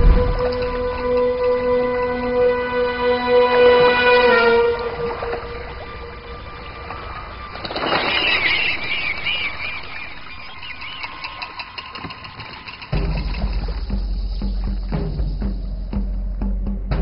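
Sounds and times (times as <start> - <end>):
low drumming: 0.0 - 2.7, 12.9 - 17.0
tense film score swell: 0.0 - 11.4
high wavering squeal-like calls: 0.7 - 14.8.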